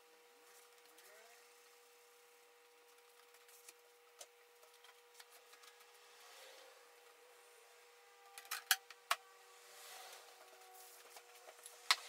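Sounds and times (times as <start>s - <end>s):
cloth rubbing on a screen: 9.6s - 11.4s.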